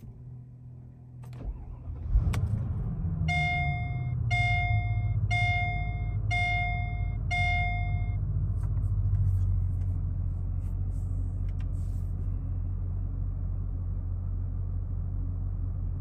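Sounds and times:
car engine idling: 0:00.0 - 0:16.0
car starter cranking: 0:01.2 - 0:04.0
dashboard warning chime: 0:03.3 - 0:08.2.

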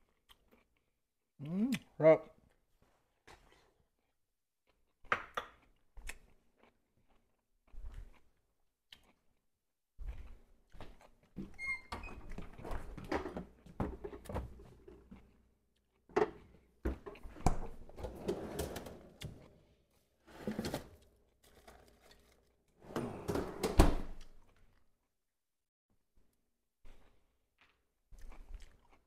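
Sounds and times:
items rustling and clattering: 0:20.2 - 0:23.7.

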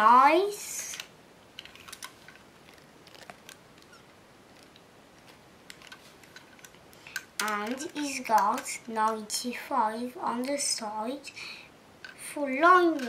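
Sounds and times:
fingers rustling: 0:00.9 - 0:09.2.

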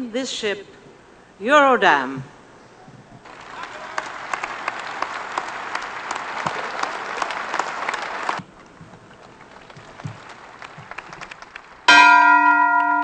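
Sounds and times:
crowd applauding: 0:03.2 - 0:13.0.

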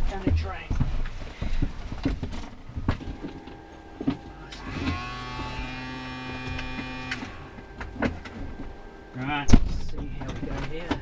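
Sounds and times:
small electric motor whine: 0:02.8 - 0:09.4.

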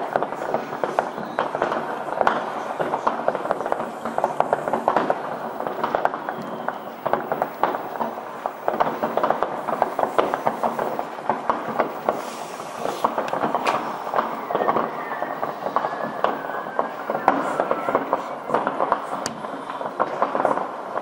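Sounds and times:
fireworks bangs and cracks: 0:00.0 - 0:21.0.

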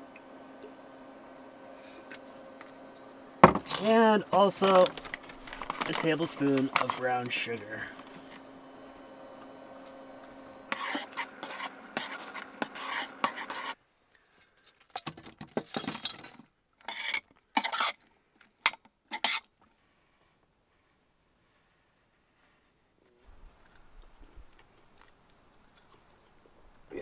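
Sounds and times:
low hum: 0:00.0 - 0:13.7
metal spoon scraping saucepan: 0:10.7 - 0:13.8, 0:16.8 - 0:18.0, 0:19.1 - 0:19.5.

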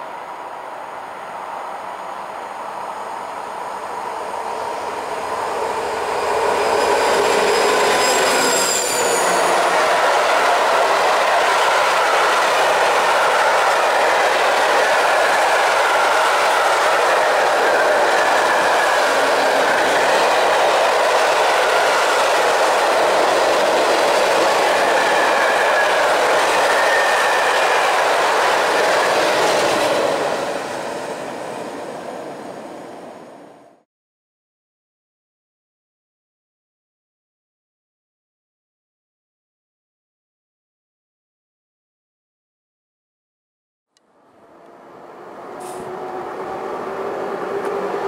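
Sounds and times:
faint wheel squeal: 0:05.9 - 0:09.8.

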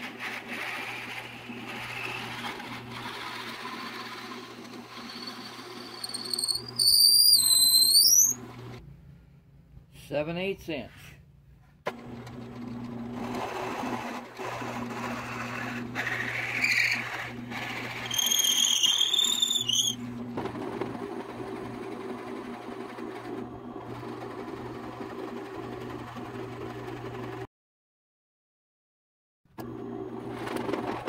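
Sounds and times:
drill bit squealing in wood: 0:00.5 - 0:08.5, 0:14.6 - 0:20.1.

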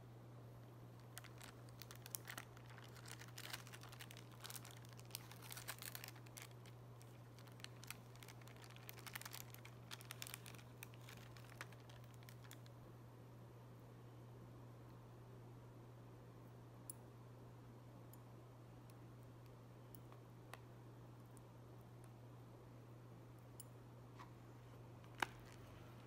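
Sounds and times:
steady low hum: 0:00.0 - 0:26.0
plastic film crinkling: 0:00.9 - 0:12.7, 0:25.0 - 0:26.0.

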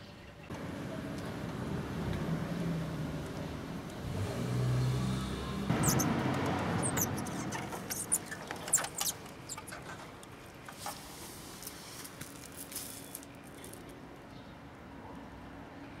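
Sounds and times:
light taps and scratches: 0:05.7 - 0:12.8
high-pitched chirps: 0:05.8 - 0:06.1, 0:06.8 - 0:09.7
faint hiss: 0:10.7 - 0:13.6.

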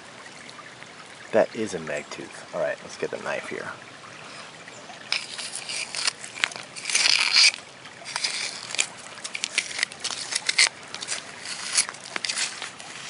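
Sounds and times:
knife scraping wet clay: 0:05.1 - 0:13.0.

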